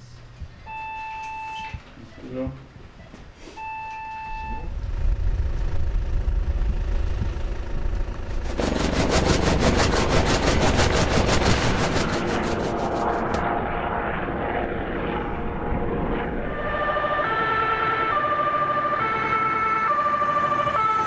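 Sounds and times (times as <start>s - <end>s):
two-tone emergency siren: 3.6s - 4.8s, 16.1s - 21.0s
helicopter rotor beating: 4.6s - 20.9s.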